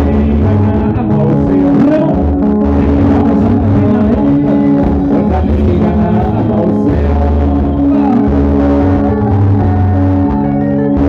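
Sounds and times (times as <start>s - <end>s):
bass line: 0.0s - 11.0s
drum kit: 0.0s - 11.0s
electric guitars: 0.0s - 11.0s
person singing: 0.0s - 11.0s.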